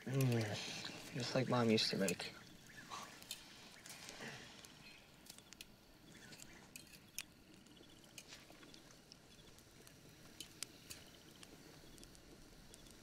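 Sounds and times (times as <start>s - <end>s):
faint background hiss: 0.0s - 13.0s
small sharp clicks: 4.6s - 13.0s.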